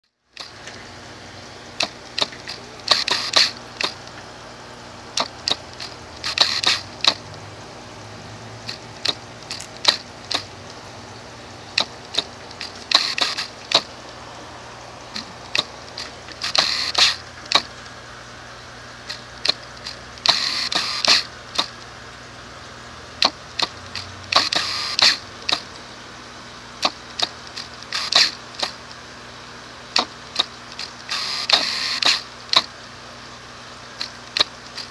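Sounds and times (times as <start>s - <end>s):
steady low hum: 0.1s - 34.9s
short crackly buzzing: 0.4s - 8.0s, 8.6s - 21.9s, 23.2s - 25.8s, 26.8s - 28.9s, 30.0s - 32.7s
camera autofocus motor clicking: 1.8s - 4.2s, 5.2s - 7.4s, 11.8s - 13.9s, 15.2s - 17.7s, 19.1s - 21.9s, 23.2s - 25.6s, 26.8s - 28.8s, 30.0s - 32.7s.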